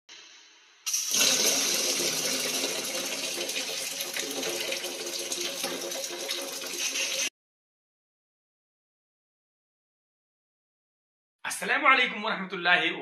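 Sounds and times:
water running into a plastic bucket: 0.9s - 7.3s.

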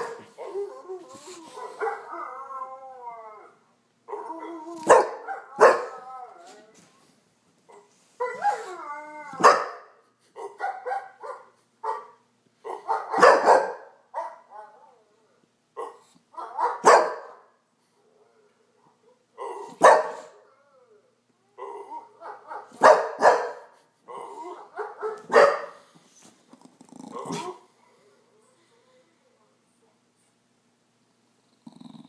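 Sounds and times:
dog whining and yowling: 0.2s - 6.8s
dog barking: 1.6s - 2.0s, 4.8s - 5.9s, 9.4s - 14.5s, 15.8s - 17.5s, 19.7s - 20.3s, 22.2s - 23.8s, 24.6s - 25.8s.

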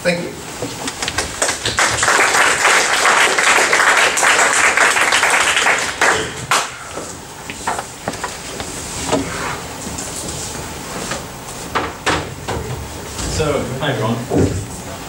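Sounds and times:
audience applauding: 0.9s - 7.0s.

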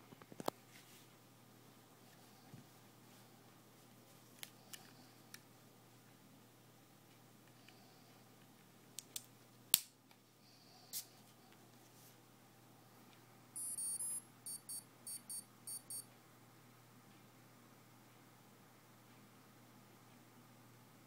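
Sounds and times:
short electronic beeps: 13.6s - 16.1s.

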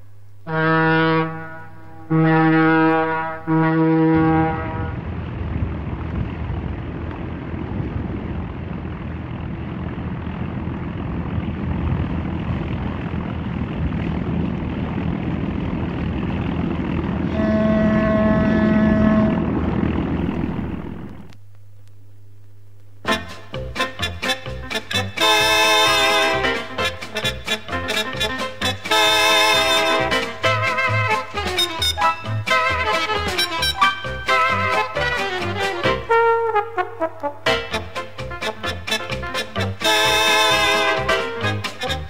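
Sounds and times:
low horn blasts: 0.4s - 5.4s, 16.4s - 21.4s, 23.0s - 42.0s
steady rushing noise: 4.2s - 21.4s.

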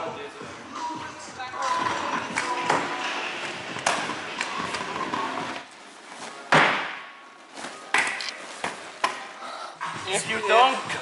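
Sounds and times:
scooter rolling: 1.6s - 6.1s.

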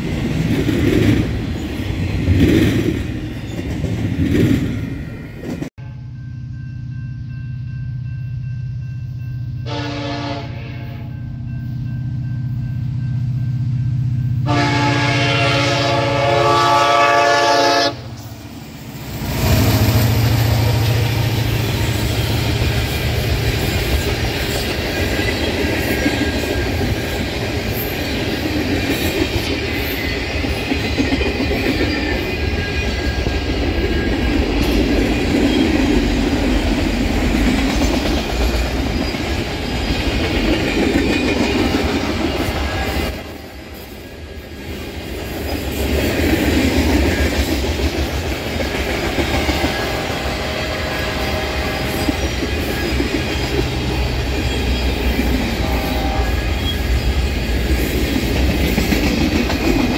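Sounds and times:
diesel locomotive engine drone: 0.0s - 59.9s
train horn blast: 9.6s - 11.4s, 14.4s - 18.2s, 49.6s - 52.1s, 55.4s - 56.9s
train wheels clattering: 45.3s - 59.9s.

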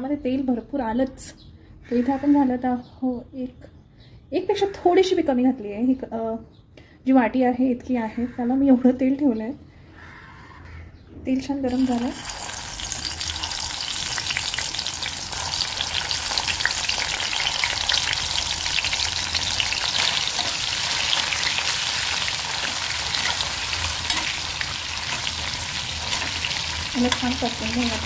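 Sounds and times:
vegetables sizzling in hot oil: 11.7s - 28.0s.

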